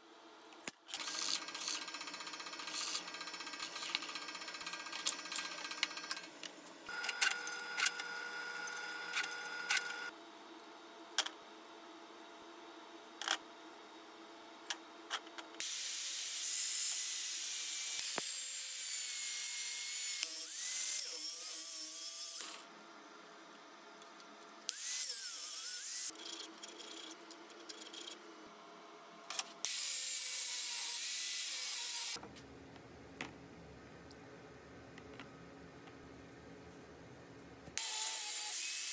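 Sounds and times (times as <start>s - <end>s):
angle grinder cutting metal: 29.7s - 32.2s, 37.8s - 38.9s.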